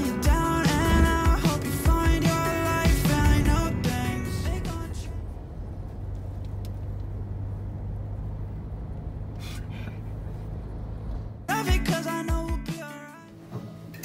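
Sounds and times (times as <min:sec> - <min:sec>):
car cabin road and engine noise: 0:00.0 - 0:11.6.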